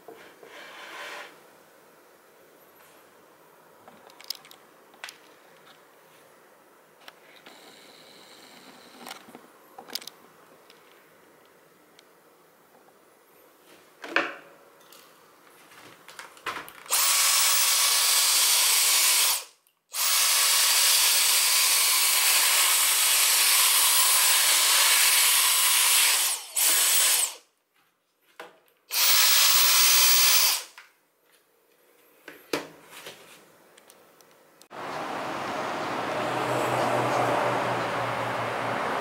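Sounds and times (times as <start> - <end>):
handheld vacuum cleaner hissing: 16.9 - 27.4.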